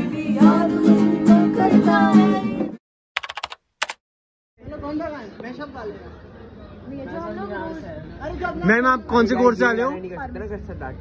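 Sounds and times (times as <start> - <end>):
typing-like clicks: 3.2 - 4.0.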